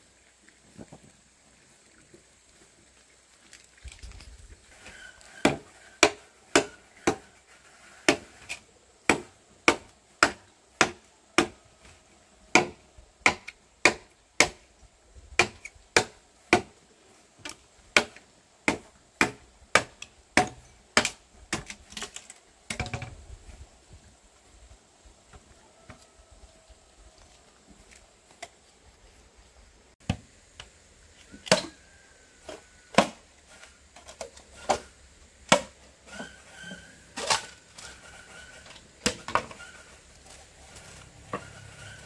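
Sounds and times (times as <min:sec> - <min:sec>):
blade chopping wood: 0:05.4 - 0:07.3, 0:08.0 - 0:11.6, 0:12.5 - 0:14.6, 0:15.4 - 0:16.8, 0:17.5 - 0:23.1, 0:32.9 - 0:33.2, 0:35.5 - 0:36.3.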